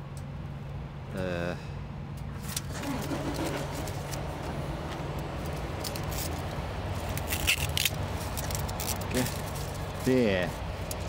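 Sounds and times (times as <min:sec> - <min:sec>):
engine idling hum: 0:00.0 - 0:11.0
clicks and crinkles of handling: 0:03.7 - 0:10.2.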